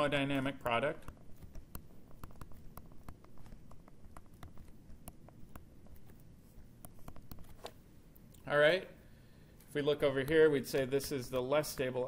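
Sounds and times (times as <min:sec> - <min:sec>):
stylus tapping on tablet screen: 0:00.9 - 0:07.8.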